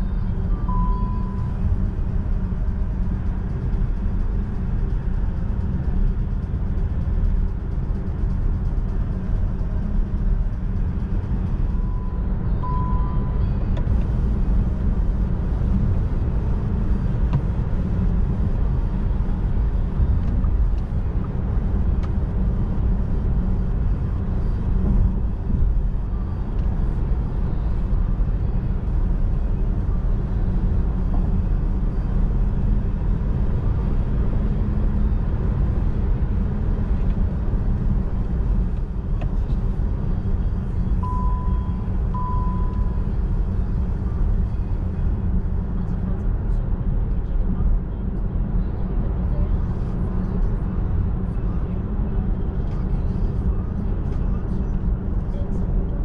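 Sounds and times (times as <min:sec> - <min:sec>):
tyre and wind rumble in car: 0:00.0 - 0:56.0
short beep: 0:00.6 - 0:01.5, 0:11.8 - 0:13.5, 0:41.0 - 0:43.0.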